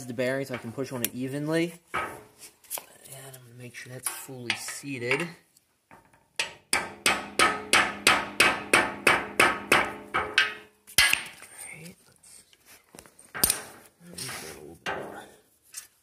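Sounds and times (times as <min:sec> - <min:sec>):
hammer striking metal: 0:06.4 - 0:11.3.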